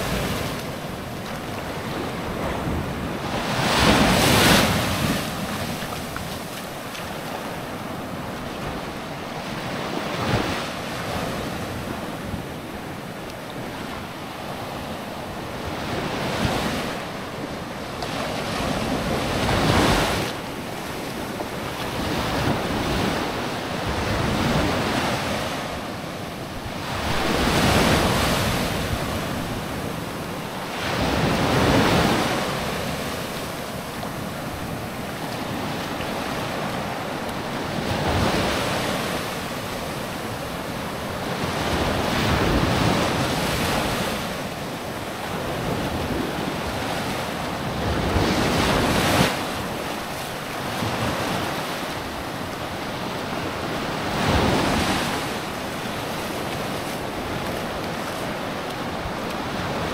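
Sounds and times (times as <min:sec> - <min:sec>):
sea waves breaking on beach: 0:00.0 - 0:59.9.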